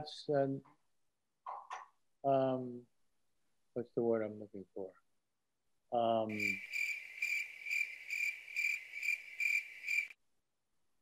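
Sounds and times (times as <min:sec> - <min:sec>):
crickets chirping: 0:06.3 - 0:10.2.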